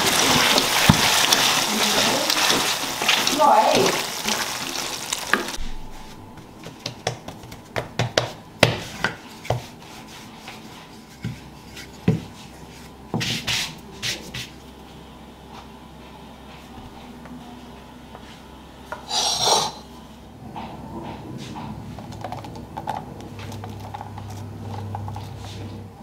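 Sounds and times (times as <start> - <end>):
rolling pin on stone counter: 6.6 - 14.6.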